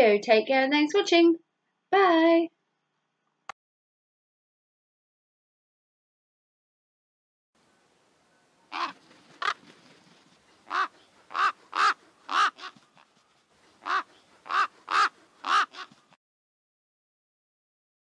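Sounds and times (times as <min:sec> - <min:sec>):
crow cawing: 0:08.7 - 0:09.6, 0:10.7 - 0:13.1, 0:13.8 - 0:16.0.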